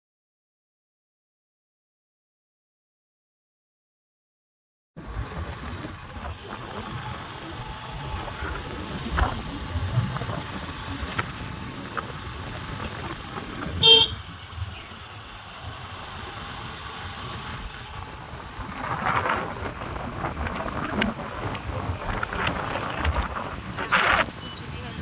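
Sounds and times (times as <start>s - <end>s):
moving vehicle road noise: 5.0s - 25.0s
short vehicle horn toot: 13.8s - 14.3s.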